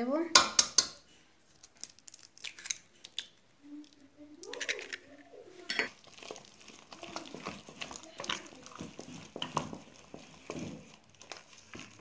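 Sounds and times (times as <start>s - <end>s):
dough stirred in metal pot: 4.4s - 12.0s.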